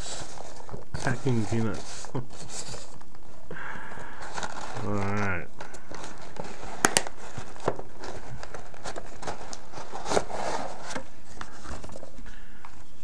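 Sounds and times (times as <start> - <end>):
packing peanuts and paper rustling: 0.0 - 3.2, 4.0 - 12.2.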